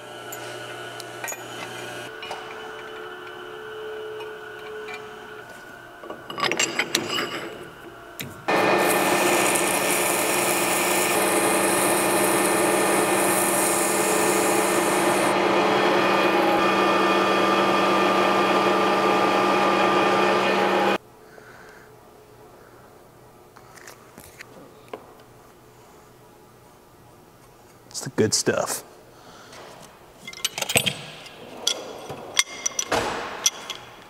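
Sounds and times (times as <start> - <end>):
metal lathe humming: 0.0 - 21.0.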